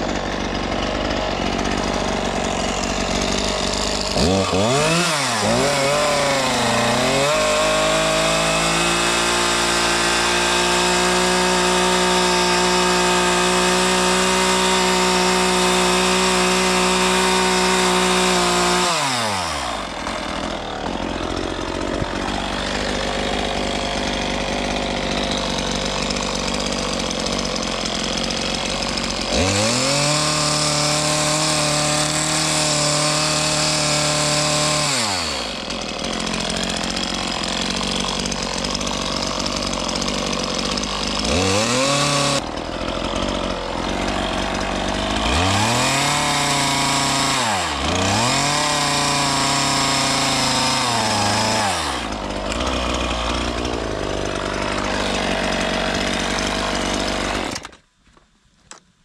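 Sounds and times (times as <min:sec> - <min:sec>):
chainsaw revving and cutting wood: 0:00.0 - 0:57.9.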